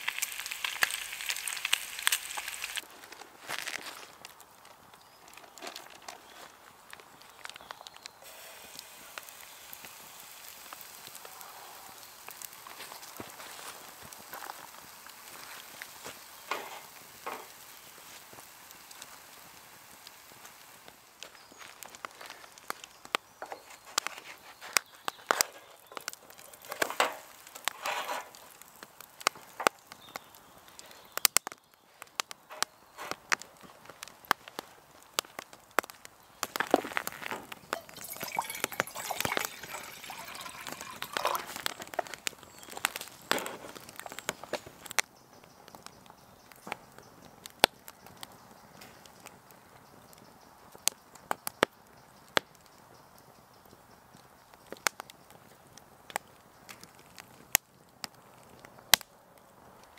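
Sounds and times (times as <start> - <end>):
batter sizzling in oil: 0.0 - 48.2
hot oil crackling and spitting: 0.0 - 59.9
spatula scraping sizzling pan: 8.2 - 14.6, 15.2 - 18.5, 25.3 - 28.8, 36.9 - 43.8.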